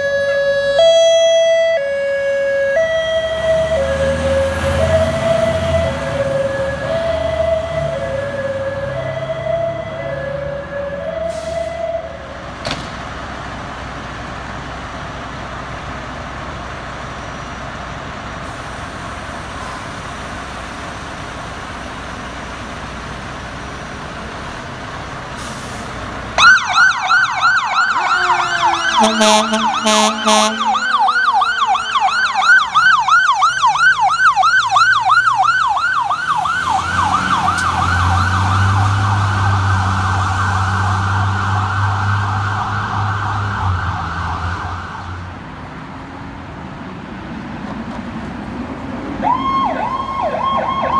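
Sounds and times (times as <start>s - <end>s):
electronic siren yelp: 0.0s - 12.2s, 26.4s - 45.2s, 49.2s - 50.9s
traffic noise: 0.0s - 50.9s
air horn blast: 28.0s - 31.6s.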